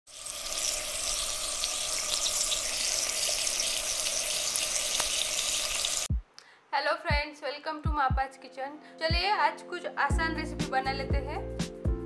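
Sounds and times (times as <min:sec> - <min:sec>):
running water rushing: 0:00.1 - 0:06.1.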